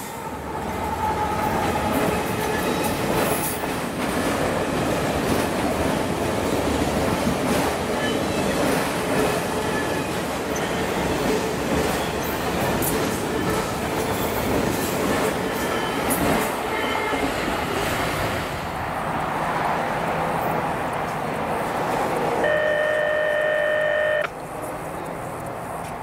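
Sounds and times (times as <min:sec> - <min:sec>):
freight train wheels on rails: 0:00.0 - 0:26.0
train horn: 0:22.4 - 0:24.3.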